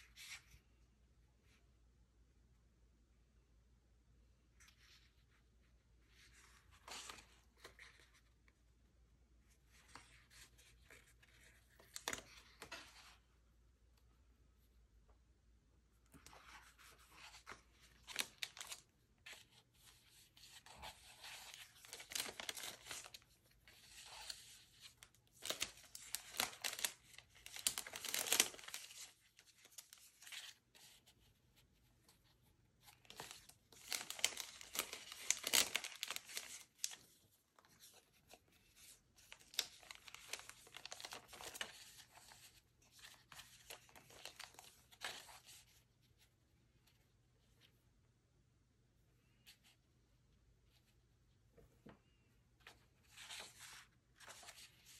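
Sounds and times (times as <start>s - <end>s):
plastic packet crinkling: 21.8s - 23.2s, 25.4s - 29.1s, 33.1s - 37.0s, 39.4s - 41.7s.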